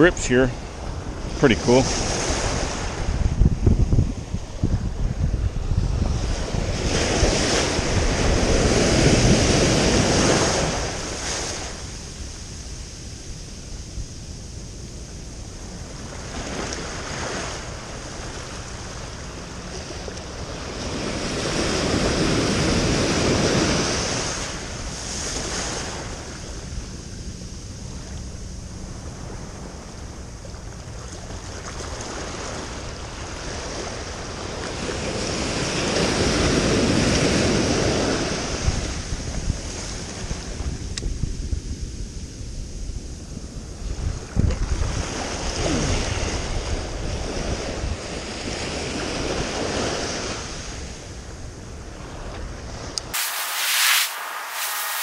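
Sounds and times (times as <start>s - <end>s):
waves rushing in: 0.0s - 14.1s, 15.6s - 27.2s, 53.0s - 55.0s
ocean surf washing: 0.0s - 40.7s, 52.8s - 55.0s
wind buffeting microphone: 0.0s - 53.2s.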